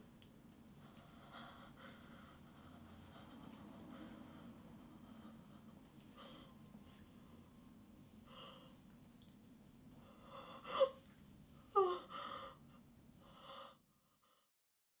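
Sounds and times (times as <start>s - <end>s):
woman gasping and whimpering: 10.1s - 11.0s, 11.6s - 12.7s.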